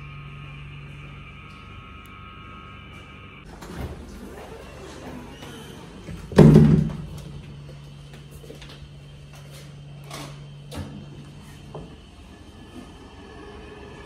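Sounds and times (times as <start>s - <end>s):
steady low hum: 0.0s - 14.0s
door slamming shut: 6.3s - 7.2s.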